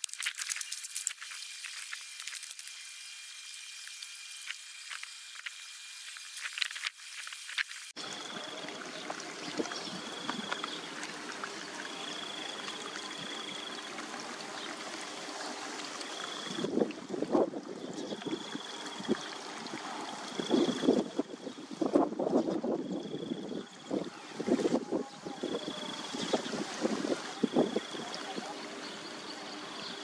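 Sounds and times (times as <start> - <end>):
water trickling in trench: 0.0 - 21.9.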